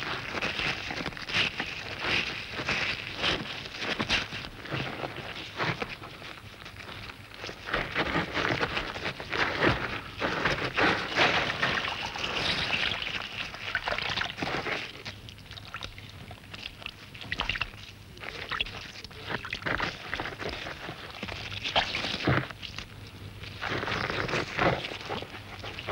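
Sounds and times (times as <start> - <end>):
wet mud squelching and sloshing: 10.7 - 22.8.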